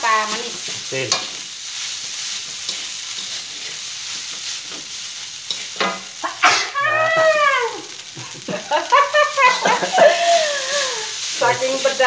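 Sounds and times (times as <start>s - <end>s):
spatula scraping wok: 0.0s - 6.8s, 9.4s - 12.0s
rice sizzling in wok: 0.0s - 12.0s.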